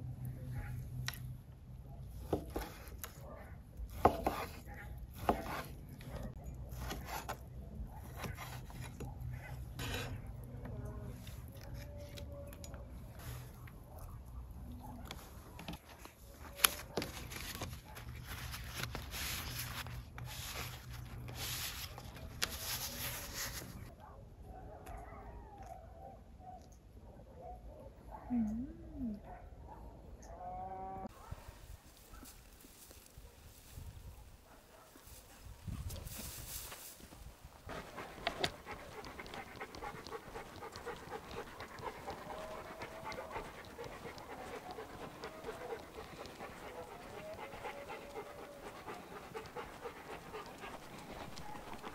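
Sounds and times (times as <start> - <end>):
flatbread rustling and crinkling: 15.1 - 23.9, 31.6 - 51.9
dog panting rapidly: 37.7 - 51.9.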